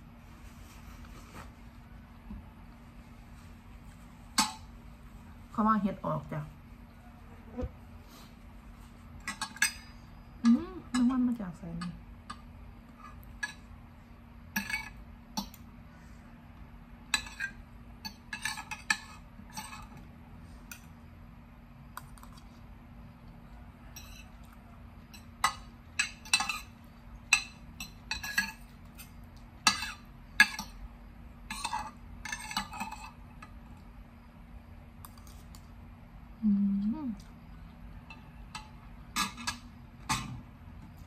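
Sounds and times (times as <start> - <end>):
faint steady hum: 0.0 - 41.0.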